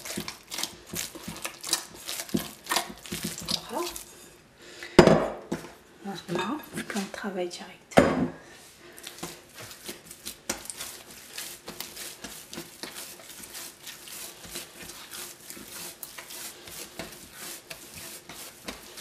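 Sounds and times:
hands slapping dough: 0.0s - 4.1s, 9.0s - 19.0s.

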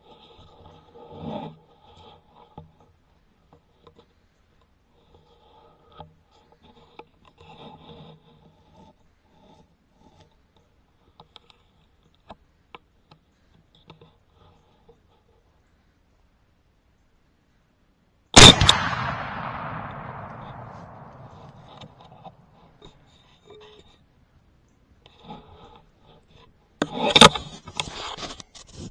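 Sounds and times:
rustle: 0.0s - 28.9s
camera handling rubbing: 25.1s - 28.9s.

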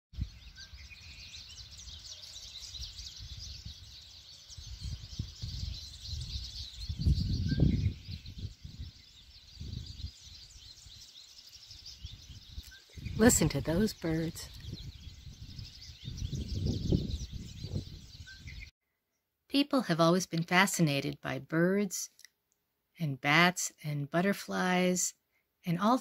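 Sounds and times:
birds chirping in chorus: 0.2s - 18.7s, 23.0s - 26.0s
whistled bird notes: 0.2s - 18.7s.

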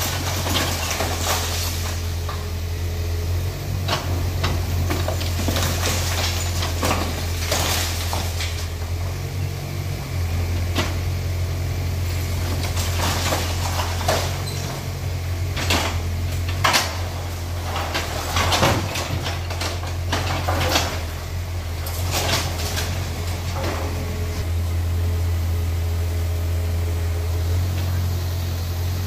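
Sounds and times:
masonry crashing down: 0.0s - 2.6s, 3.8s - 9.0s, 11.9s - 24.4s
diesel engine running: 0.0s - 29.0s.

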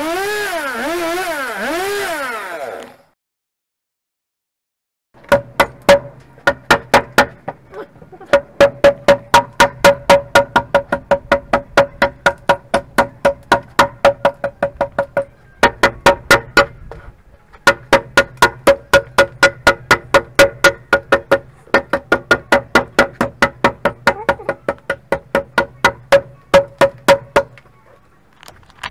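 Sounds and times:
axe chopping wooden log: 5.2s - 7.6s, 8.3s - 17.0s, 17.7s - 27.6s.

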